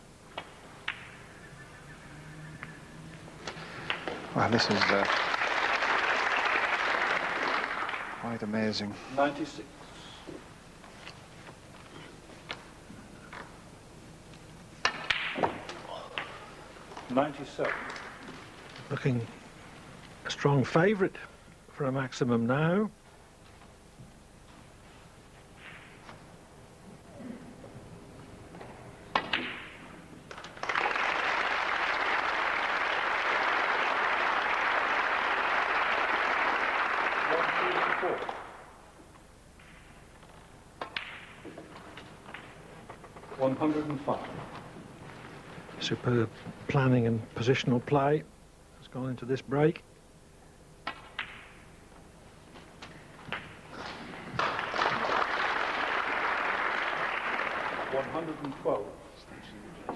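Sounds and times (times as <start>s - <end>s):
snooker ball clicks: 0.3s - 1.2s, 14.8s - 16.3s, 39.6s - 43.2s, 50.8s - 51.6s
snooker balls clicking: 0.3s - 1.2s, 3.4s - 4.4s, 14.3s - 19.0s, 39.1s - 45.6s, 50.8s - 51.7s, 52.5s - 54.8s
audience applauding: 3.4s - 8.5s, 30.3s - 38.7s, 54.3s - 58.5s.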